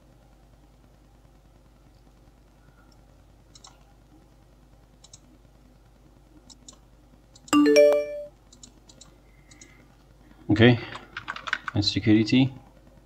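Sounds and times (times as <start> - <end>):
computer alert chime: 7.6 - 8.3.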